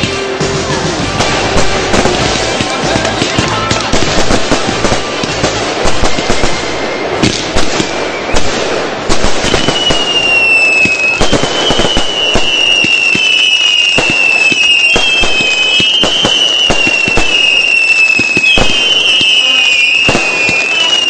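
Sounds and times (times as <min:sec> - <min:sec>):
whistling fireworks: 0:00.0 - 0:00.4, 0:01.1 - 0:21.0
fireworks crackling and popping: 0:00.0 - 0:21.0
fireworks sharp bangs: 0:00.0 - 0:21.0.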